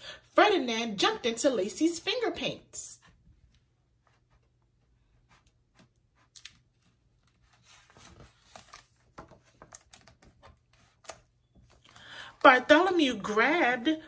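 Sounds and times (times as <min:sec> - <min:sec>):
paper page rustling and turning: 0:03.1 - 0:12.1.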